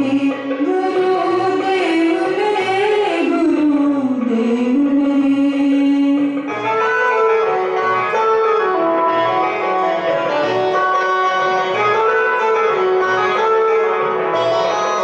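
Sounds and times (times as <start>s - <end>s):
keyboard playing devotional melody: 6.2s - 15.0s.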